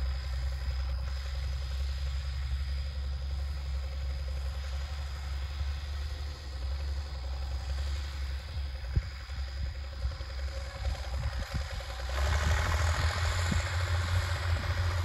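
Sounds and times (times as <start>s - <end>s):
tractor engine running under load: 0.0s - 15.0s.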